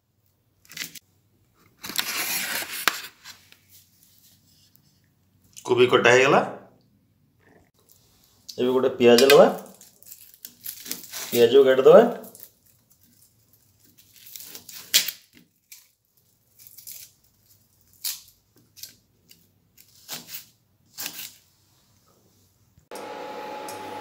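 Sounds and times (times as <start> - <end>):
knife slicing onion crunch: 19.7 - 21.4.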